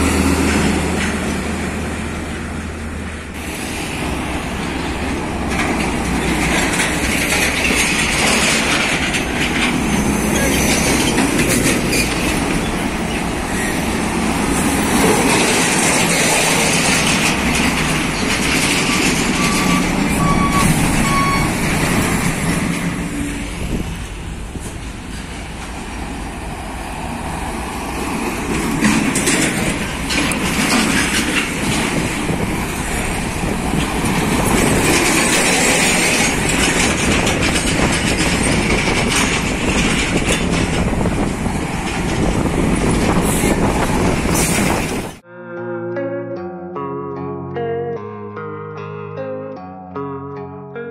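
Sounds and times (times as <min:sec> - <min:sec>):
trucks passing: 0:00.0 - 0:45.2
short high beeps: 0:19.4 - 0:21.6.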